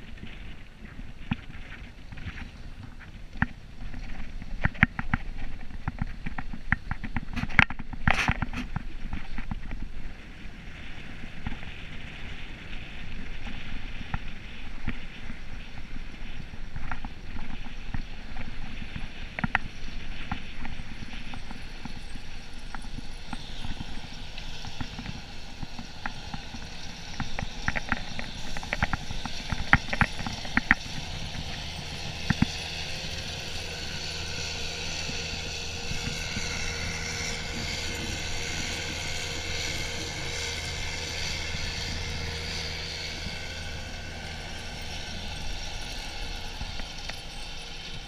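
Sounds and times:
vehicle engine and tyres rumbling: 0.0 - 48.0
snow crunching: 20.8 - 48.0.

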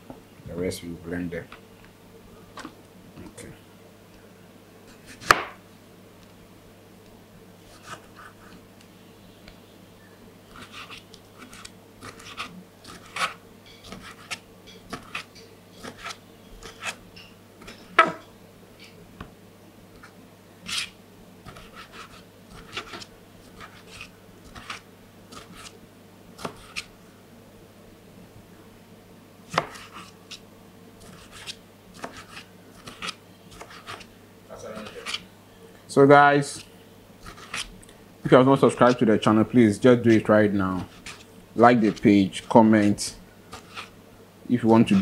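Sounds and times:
knife cutting on cutting board: 10.5 - 17.0, 20.7 - 25.7, 26.4 - 26.9, 29.5 - 30.4, 31.0 - 34.1, 34.8 - 35.2, 36.6 - 37.7, 40.8 - 42.1, 43.5 - 43.9.

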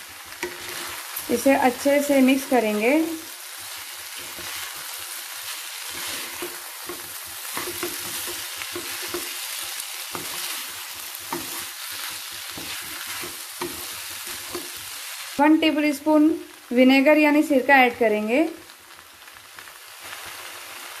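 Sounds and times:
wooden spatula scraping a pan: 0.0 - 15.0
food sizzling in oil: 0.0 - 21.0.

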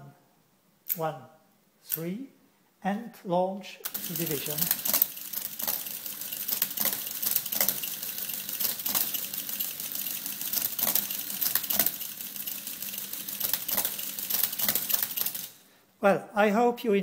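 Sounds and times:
rapid mechanical clatter: 3.9 - 15.5.

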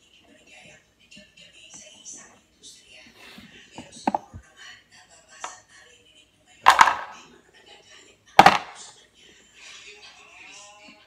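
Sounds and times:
wooden blocks clacking: 6.7 - 7.2, 8.4 - 8.8.

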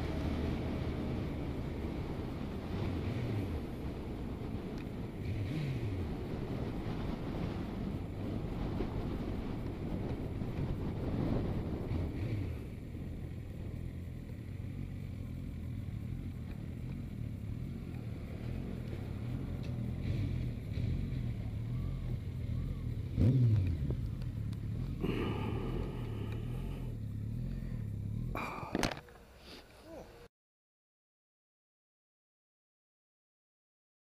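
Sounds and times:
motorcycle engine revving: 0.0 - 29.0
motorcycle engine idling: 3.6 - 30.2.

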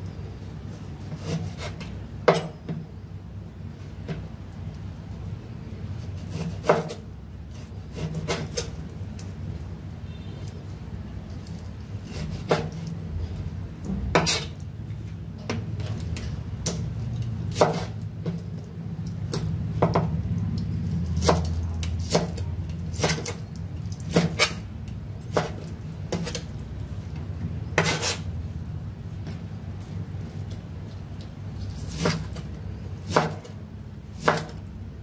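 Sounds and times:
low steady hum: 0.0 - 35.0
knife scraping board: 1.0 - 2.5, 6.0 - 8.8, 12.0 - 12.9, 14.2 - 14.5, 17.5 - 18.0, 24.1 - 24.6, 25.3 - 26.5, 27.8 - 28.3, 31.7 - 32.4.

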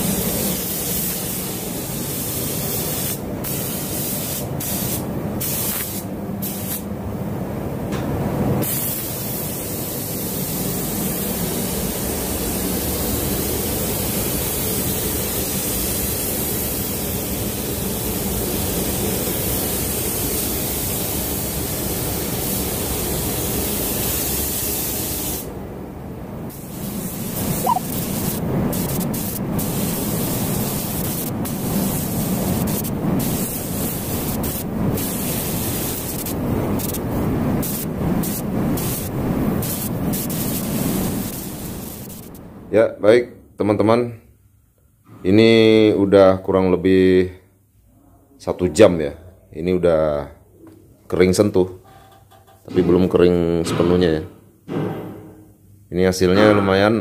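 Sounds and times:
paint spray gun hissing: 0.0 - 6.8, 26.6 - 37.0, 37.6 - 42.4.

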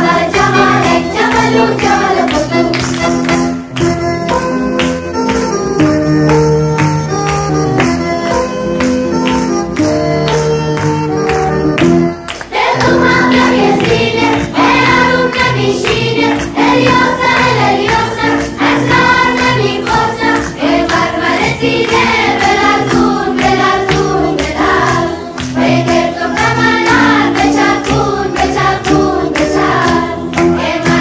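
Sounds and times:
several voices singing a song: 0.0 - 2.7, 12.5 - 31.0.

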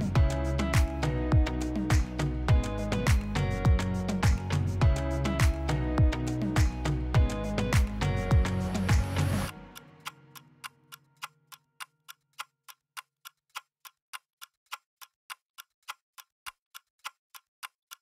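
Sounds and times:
steady ticking: 0.0 - 9.1, 10.0 - 18.0
music track: 0.0 - 11.2.

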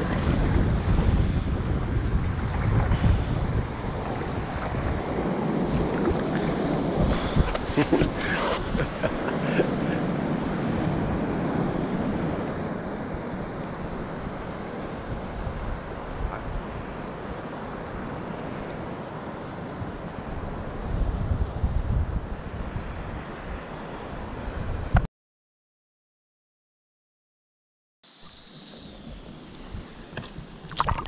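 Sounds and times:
water lapping against kayak hull: 0.0 - 20.1, 30.1 - 31.0
wind rumble on microphone: 0.0 - 25.1
paddle splashes: 4.0 - 13.4, 30.2 - 31.0.

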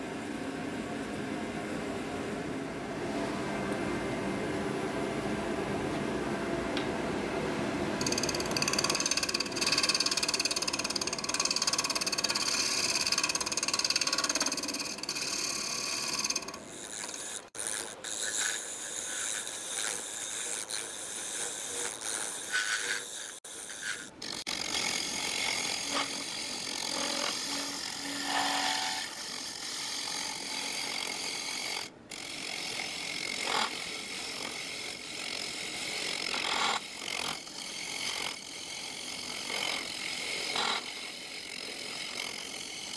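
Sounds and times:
steady tones: 8.0 - 17.6
gouge scraping wood on lathe: 8.0 - 42.9.

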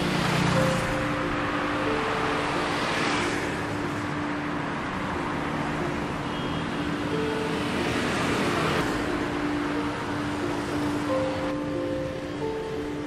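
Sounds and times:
motorbikes driving past: 0.0 - 6.1
cars driving past: 0.0 - 13.0.

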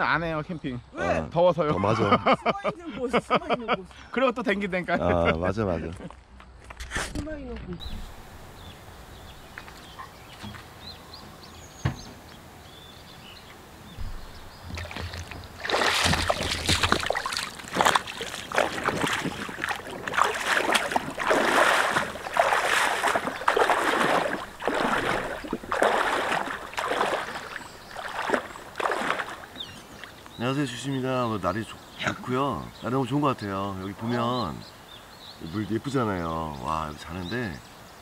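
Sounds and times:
water sloshing from wading steps: 13.5 - 30.4.

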